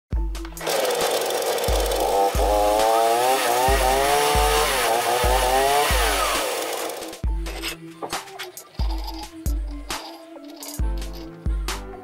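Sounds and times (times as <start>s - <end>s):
chainsaw engine revving: 0.5s - 7.2s.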